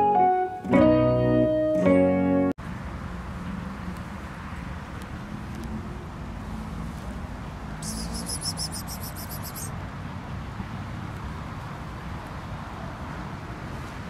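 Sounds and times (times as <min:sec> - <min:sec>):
bird trilling: 0:07.8 - 0:09.7.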